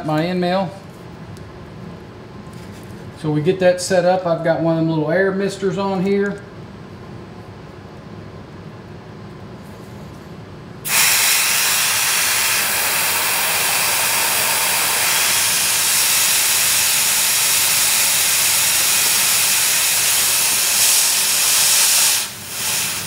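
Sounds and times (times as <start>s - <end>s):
compressed air mister hissing: 10.8s - 23.0s.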